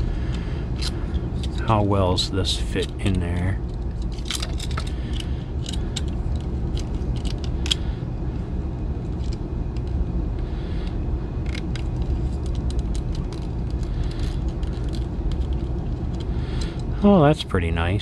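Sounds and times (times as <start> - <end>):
low background rumble: 0.0 - 18.0.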